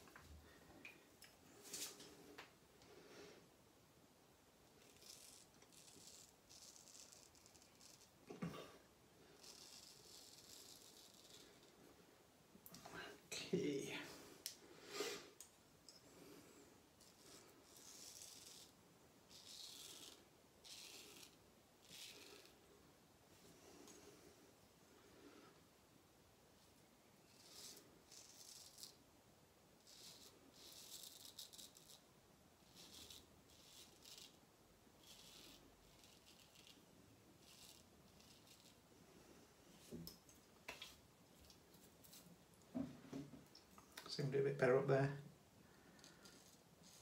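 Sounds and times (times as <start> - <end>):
razor scraping stubble: 4.8 - 8.6, 9.4 - 11.7, 17.0 - 22.6, 27.3 - 29.0, 29.8 - 32.0, 32.6 - 34.4, 35.0 - 36.8, 37.4 - 38.8.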